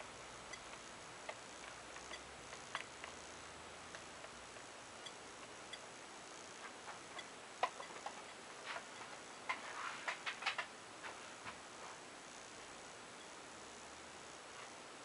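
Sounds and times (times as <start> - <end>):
faint clicks and ticks: 0.0 - 10.8
low hiss: 0.0 - 15.0.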